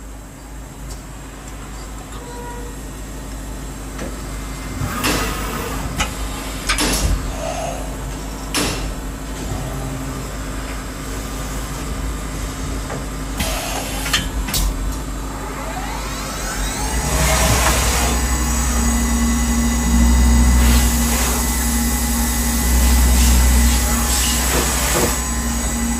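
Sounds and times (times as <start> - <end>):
milling machine hum: 3.1 - 25.9
machine knocks and clanks: 6.0 - 7.4, 22.8 - 25.4.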